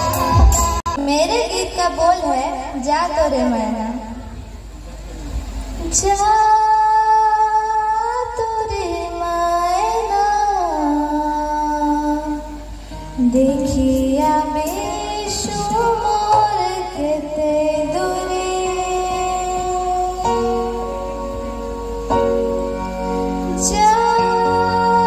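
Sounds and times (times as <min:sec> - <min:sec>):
girl singing through pa: 0:05.8 - 0:20.9, 0:23.4 - 0:25.0.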